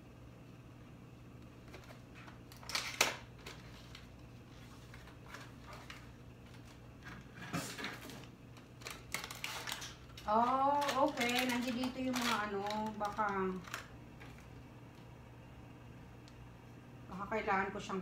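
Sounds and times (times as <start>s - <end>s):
plastic packaging crinkling: 1.6s - 14.7s.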